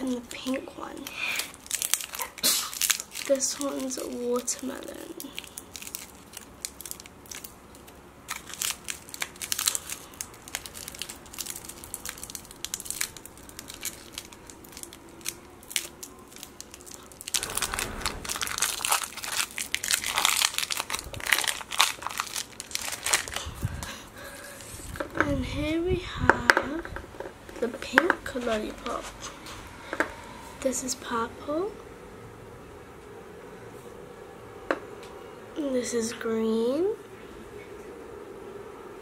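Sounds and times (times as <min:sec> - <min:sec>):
plastic wrapper crinkling: 0:00.0 - 0:25.2.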